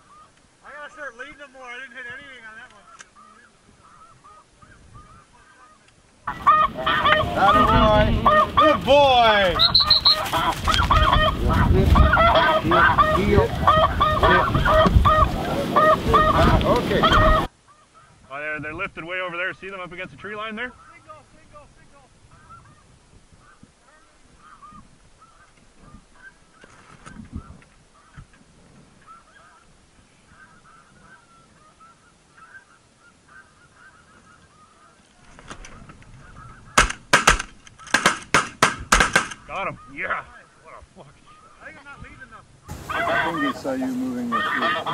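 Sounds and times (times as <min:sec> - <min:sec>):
geese honking in chorus: 0:02.3 - 0:18.2, 0:22.3 - 0:26.7, 0:29.0 - 0:36.8, 0:39.3 - 0:44.9
shotgun blasts: 0:36.8 - 0:39.4.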